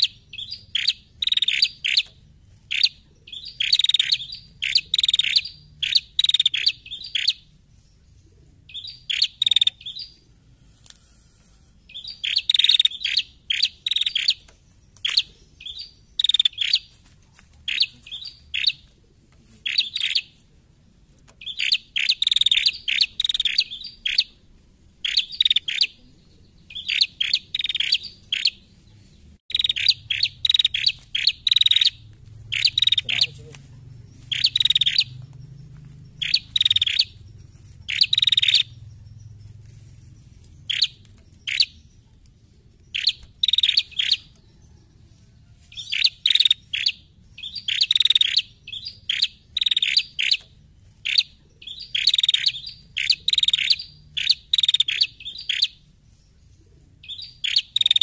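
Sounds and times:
faint low hum: 0.1 - 45.8
bird chirping sharply: 2.7 - 7.5, 8.7 - 10.2, 11.8 - 16.9, 21.4 - 24.4, 25.0 - 26.0, 26.7 - 28.6, 29.5 - 33.5, 34.2 - 35.4, 36.2 - 39.5, 40.6 - 42.1, 45.8 - 50.4.

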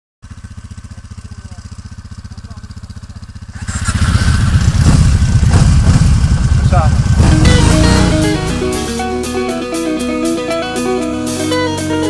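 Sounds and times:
quad bike engine idling: 0.2 - 12.0
loud sound with sharp beats: 3.6 - 11.3.

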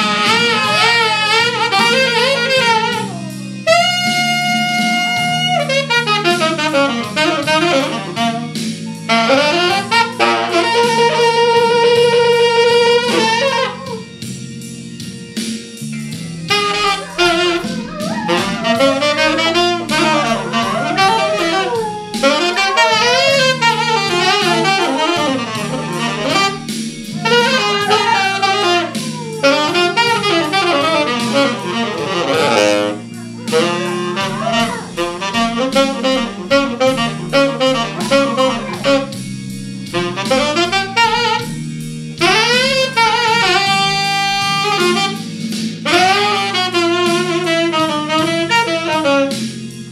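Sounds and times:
dog howling: 0.0 - 3.9, 4.8 - 14.2, 16.5 - 39.3
low backing accompaniment: 0.0 - 49.9
saxophone playing jazzy melody: 0.0 - 49.9.

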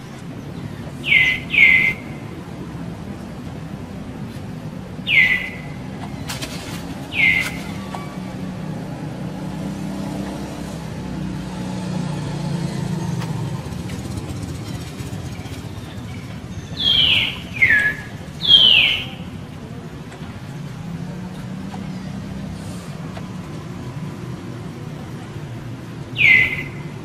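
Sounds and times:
high downward-sliding calls: 1.0 - 2.2, 5.0 - 5.9, 7.1 - 8.1, 16.6 - 19.3, 26.1 - 27.0.

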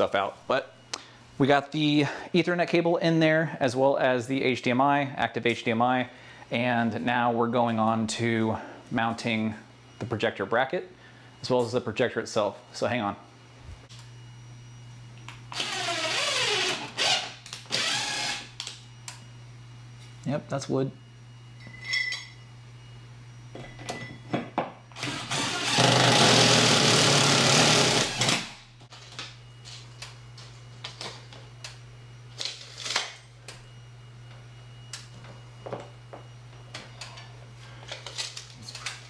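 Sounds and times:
cordless drill boring into wood: 15.6 - 18.5, 25.0 - 28.6.

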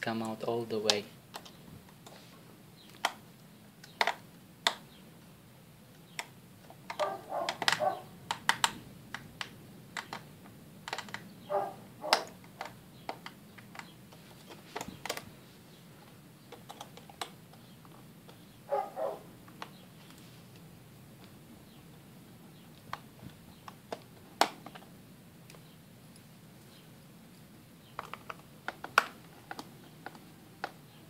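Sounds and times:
handling noise: 6.6 - 25.7.

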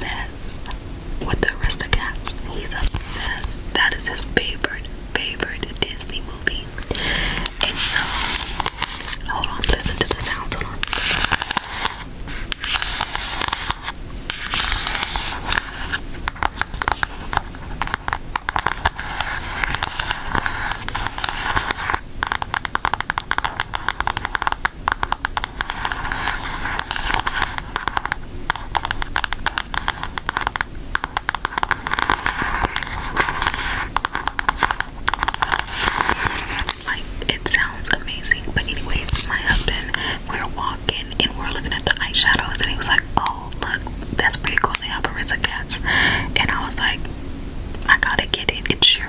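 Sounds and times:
nails tapping and scratching plastic: 6.8 - 40.0.

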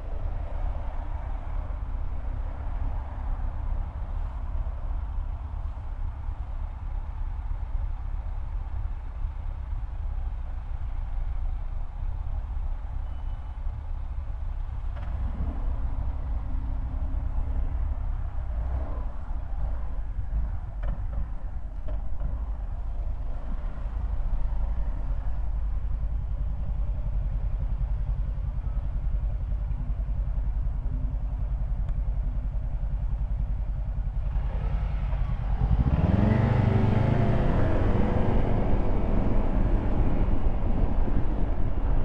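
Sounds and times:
traffic rumble: 0.0 - 42.0
vehicle engine passing close: 34.0 - 42.0.

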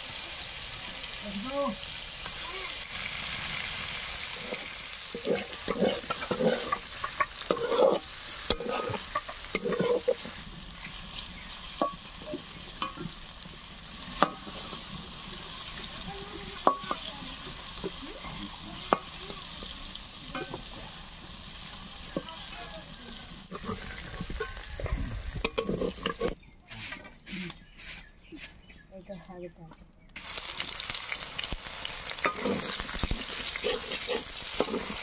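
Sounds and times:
fish sizzling in oil: 0.0 - 26.3, 30.2 - 35.0
spatula scraping a wok: 2.2 - 19.7, 23.4 - 28.7, 31.8 - 35.0.

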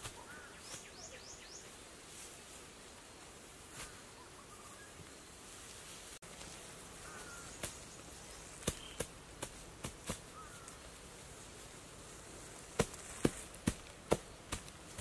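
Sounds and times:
hand slapping grass turf: 0.0 - 0.9, 7.6 - 7.9, 8.6 - 10.9, 12.4 - 15.0
forest background: 0.0 - 15.0
bird chirps: 0.2 - 1.8, 7.0 - 9.1.

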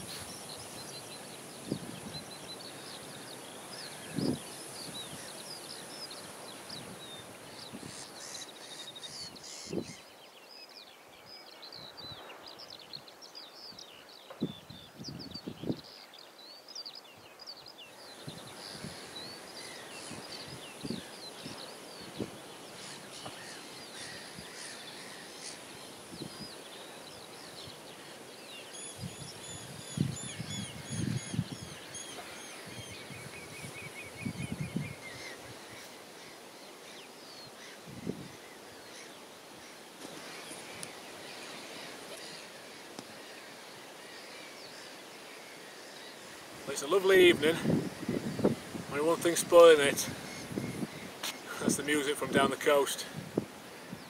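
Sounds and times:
seabirds calling: 0.0 - 11.1, 11.7 - 54.0
wind thumping microphone: 29.0 - 31.8, 47.6 - 48.9, 50.1 - 51.3.

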